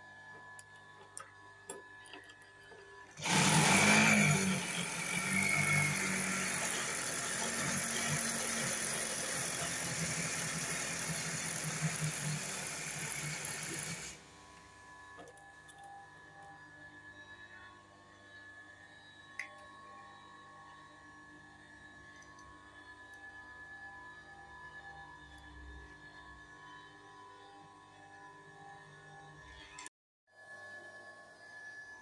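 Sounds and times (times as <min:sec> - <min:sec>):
sewing machine running: 0:03.0 - 0:14.3.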